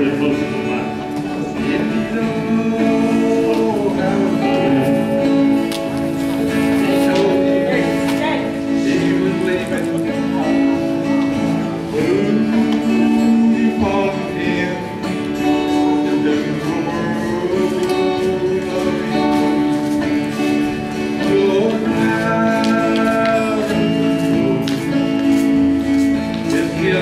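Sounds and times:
acoustic guitar strumming: 0.0s - 27.0s
person singing: 0.0s - 27.0s.

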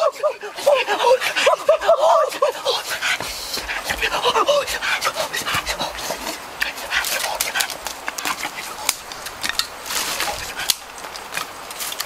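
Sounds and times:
dry sticks and leaves crackling: 3.2s - 12.0s.

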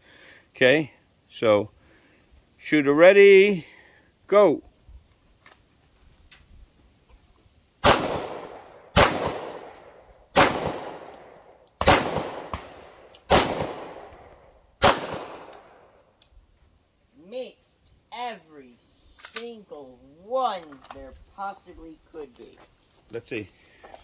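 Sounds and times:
pistol shots: 7.8s - 14.2s, 14.8s - 15.8s.

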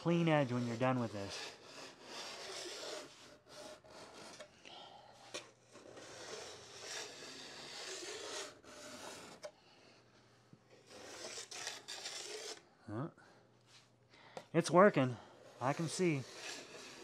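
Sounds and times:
file rasping along steel edge: 0.0s - 4.6s, 5.2s - 9.6s, 10.8s - 12.6s, 15.2s - 17.0s.

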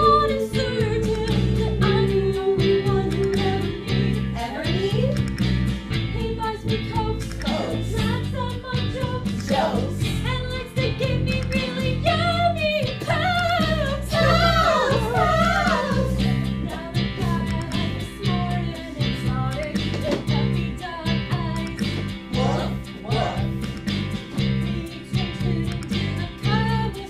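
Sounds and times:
woman singing: 0.0s - 5.2s, 6.1s - 23.6s, 24.3s - 27.0s
instrumental accompaniment: 0.0s - 27.0s.

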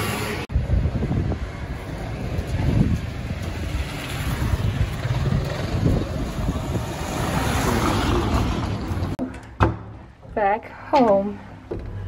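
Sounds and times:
street traffic: 0.0s - 12.0s
wind on microphone: 0.5s - 9.2s.

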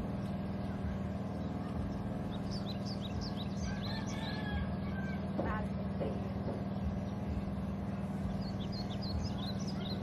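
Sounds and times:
bird chirping: 0.0s - 10.0s
steady engine drone: 0.0s - 10.0s.

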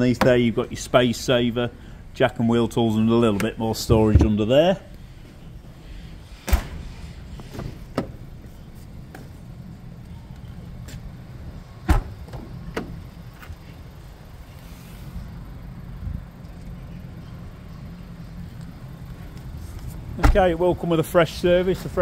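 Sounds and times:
steady low hum: 0.0s - 22.0s
car tailgate thumping shut: 11.8s - 12.9s.

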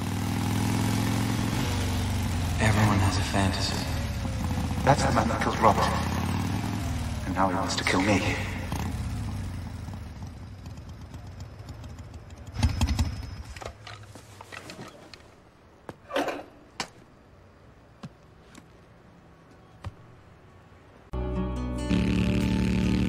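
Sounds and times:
motorcycle engine running: 0.0s - 13.6s, 21.9s - 23.0s.

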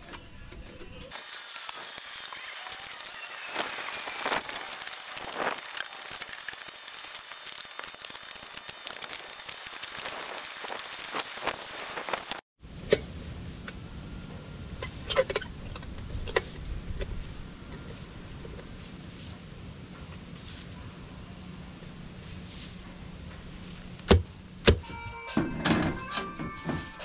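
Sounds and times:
metal stovepipe clicking and crinkling: 0.0s - 12.2s.

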